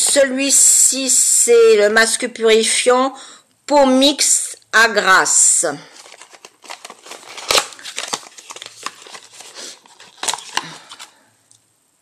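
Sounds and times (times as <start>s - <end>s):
plastic wrapping crinkling: 5.9s - 11.3s.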